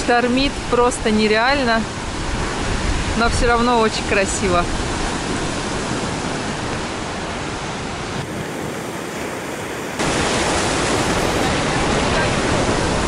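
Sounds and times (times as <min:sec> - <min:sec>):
surf breaking on pebble beach: 0:08.1 - 0:13.0.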